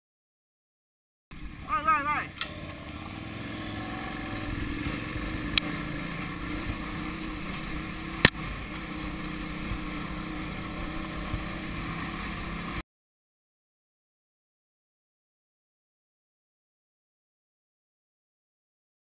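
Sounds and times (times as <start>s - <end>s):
motorcycle engine running: 1.3s - 12.8s
wind on microphone: 4.0s - 11.8s.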